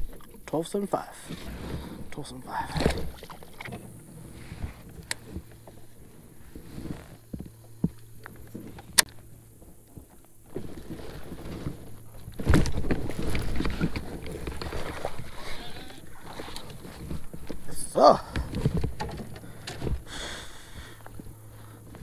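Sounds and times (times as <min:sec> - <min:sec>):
fishing gear knocks and clicks: 0:07.2 - 0:20.1.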